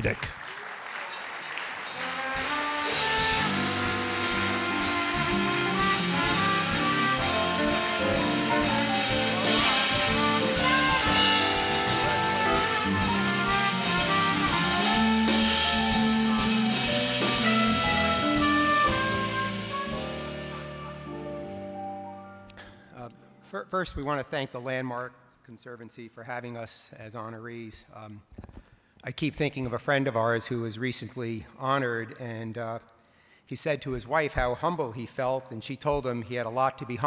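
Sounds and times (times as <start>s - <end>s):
steady drum beat: 1.8s - 21.2s
jazzy dance orchestra playing: 1.8s - 23.2s.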